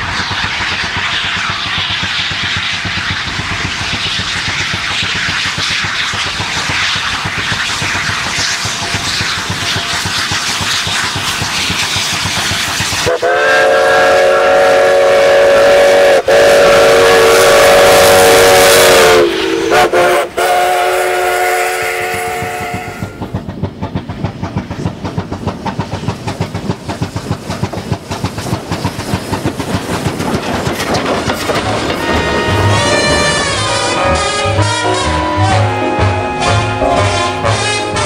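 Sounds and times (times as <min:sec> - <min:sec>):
locomotive clatter: 0:00.0 - 0:13.2, 0:22.1 - 0:35.8
steam locomotive whistle: 0:13.0 - 0:23.3, 0:31.8 - 0:38.0.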